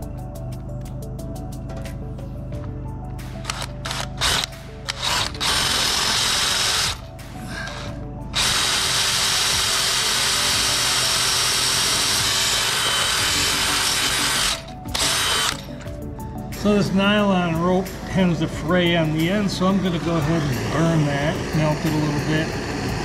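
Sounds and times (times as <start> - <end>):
cordless drill boring into wood: 3.5 - 7.0, 7.6 - 15.7.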